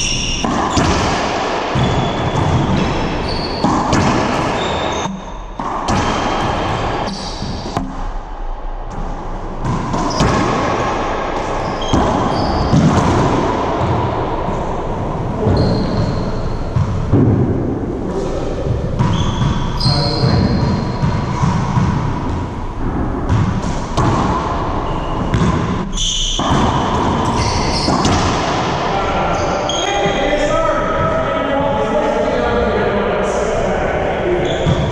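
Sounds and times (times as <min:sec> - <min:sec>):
sneakers squeaking: 0:00.0 - 0:07.9, 0:08.9 - 0:17.2, 0:18.2 - 0:31.2, 0:34.4 - 0:34.9
racquetball smacking off walls: 0:00.3 - 0:08.1, 0:08.9 - 0:14.0, 0:23.2 - 0:28.8.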